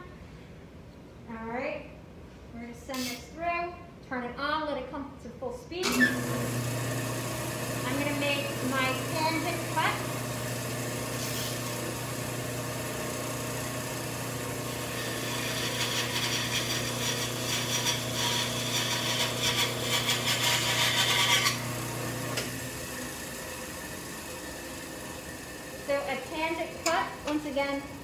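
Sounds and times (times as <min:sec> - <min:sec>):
band saw motor hum: 0:05.9 - 0:28.0
saw blade rasping through wood: 0:14.9 - 0:21.6.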